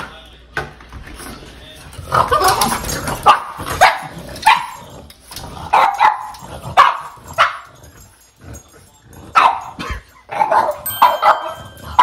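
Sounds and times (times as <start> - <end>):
dog barking: 3.2 - 4.8, 5.7 - 7.7, 9.4 - 12.0.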